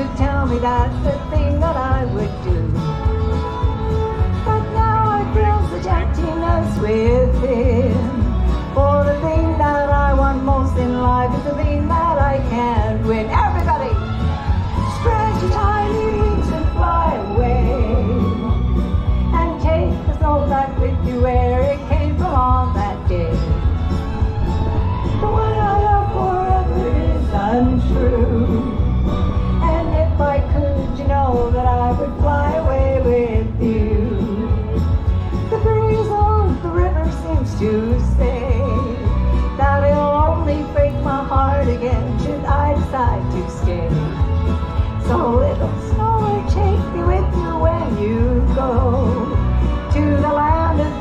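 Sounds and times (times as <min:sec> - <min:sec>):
person singing into microphone: 0:00.0 - 0:03.2, 0:04.4 - 0:23.8, 0:24.8 - 0:51.0
backing track with heavy bass: 0:00.0 - 0:51.0
backing music with bass beat: 0:20.8 - 0:39.8
girl singing into microphone: 0:29.6 - 0:34.7.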